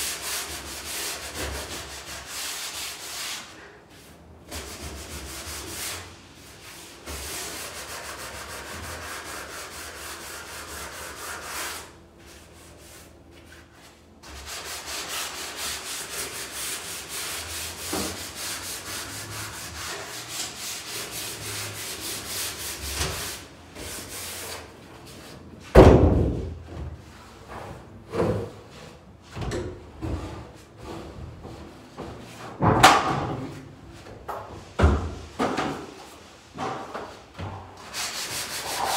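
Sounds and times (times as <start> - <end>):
sanding strokes on wood: 0.0 - 3.6, 4.5 - 13.1, 14.2 - 24.7, 37.9 - 38.9.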